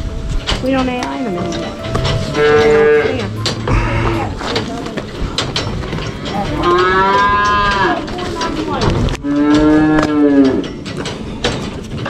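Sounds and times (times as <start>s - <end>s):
cattle mooing: 1.4s - 4.6s, 6.3s - 8.0s, 9.2s - 10.6s.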